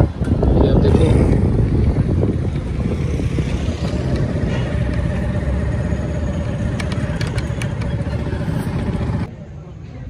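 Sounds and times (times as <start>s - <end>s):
wind and road noise: 0.0s - 10.0s
motorcycle engine running: 0.4s - 9.3s.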